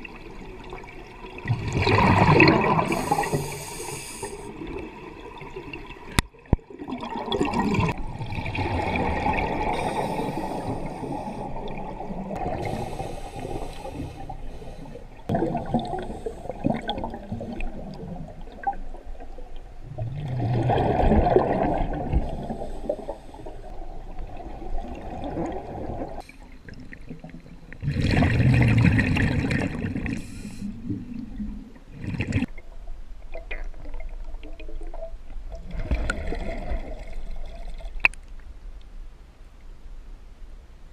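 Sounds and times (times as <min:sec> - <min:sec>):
gurgling exhaled bubbles: 0:00.0 - 0:14.4, 0:15.2 - 0:19.0, 0:19.8 - 0:26.2, 0:27.0 - 0:32.5, 0:35.6 - 0:38.0
diver breathing through regulator: 0:02.8 - 0:04.6, 0:09.7 - 0:11.6, 0:12.4 - 0:15.2, 0:15.8 - 0:16.8, 0:30.2 - 0:30.8.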